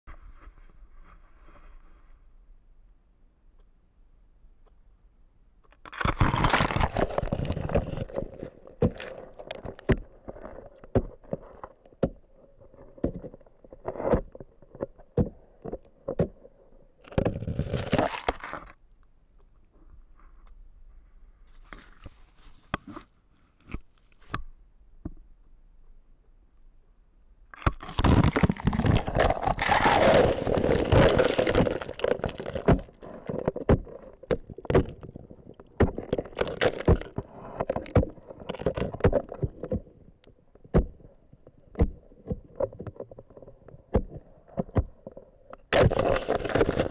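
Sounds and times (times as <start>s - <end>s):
ice chunks knocking: 5.9s - 11.4s, 27.6s - 39.8s.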